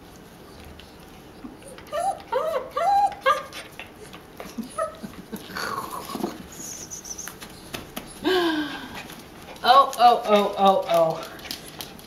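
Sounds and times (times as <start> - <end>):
dog whimpering: 1.3 - 8.3.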